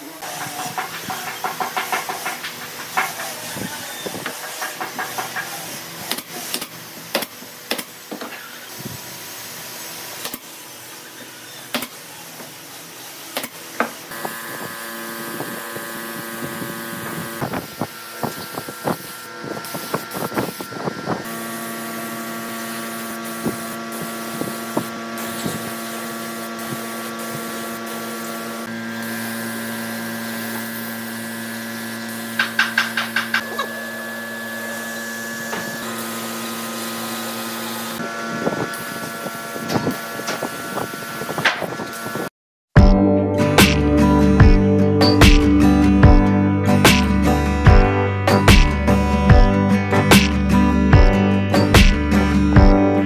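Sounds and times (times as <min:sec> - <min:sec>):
spray gun hissing: 0:00.0 - 0:07.2, 0:08.4 - 0:32.6, 0:33.4 - 0:38.0
steady machine hum: 0:00.0 - 0:41.4, 0:42.0 - 0:53.0.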